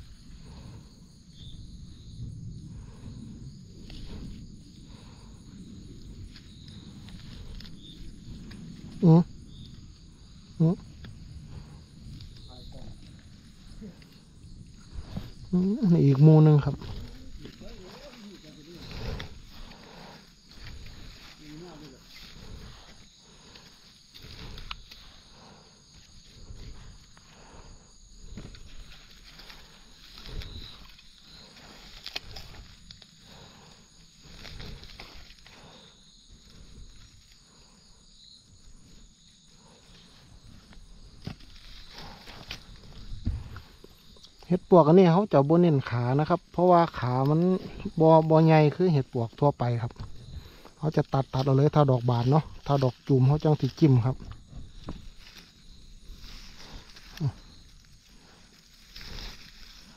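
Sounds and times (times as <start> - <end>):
low rumble: 0.0 - 35.8
insects droning: 0.0 - 59.9
leaf litter rustling: 15.0 - 25.1, 51.2 - 59.9
faint clicks and crackles: 28.5 - 35.8.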